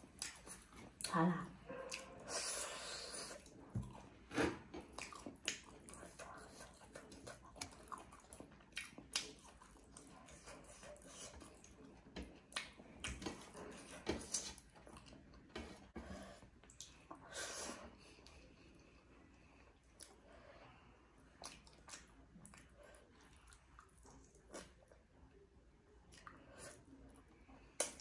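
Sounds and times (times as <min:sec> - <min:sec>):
chewing with wet mouth smacks: 0:00.0 - 0:01.2, 0:03.2 - 0:15.5, 0:19.7 - 0:20.4, 0:21.2 - 0:28.0.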